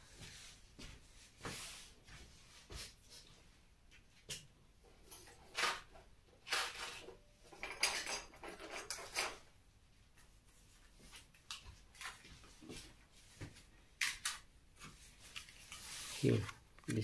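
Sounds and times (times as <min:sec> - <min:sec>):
small hard parts clinking: 0:06.4 - 0:09.4.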